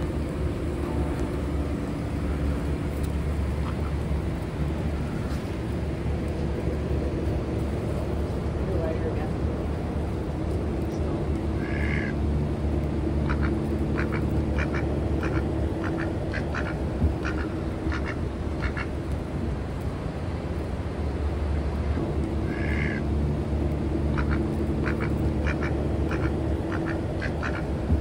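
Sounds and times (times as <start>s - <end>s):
steady low hum: 0.0s - 28.0s
ducks quacking: 3.5s - 4.1s, 11.6s - 12.2s, 13.2s - 18.9s, 22.4s - 23.0s, 24.1s - 27.7s.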